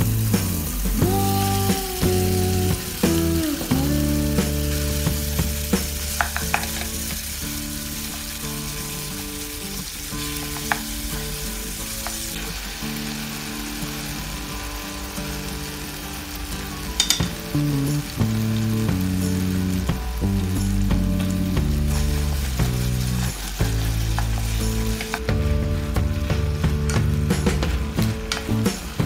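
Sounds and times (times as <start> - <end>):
meat sizzling in a pan: 0.0 - 29.0
soft background music: 0.0 - 29.0
utensil clicking against pan: 6.1 - 7.1, 17.0 - 17.4.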